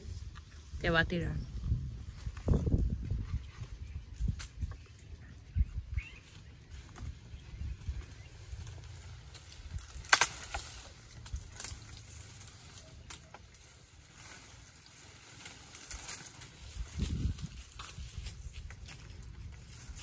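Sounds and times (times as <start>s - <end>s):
branches snapping and knocking: 4.1s - 5.0s, 6.7s - 20.0s.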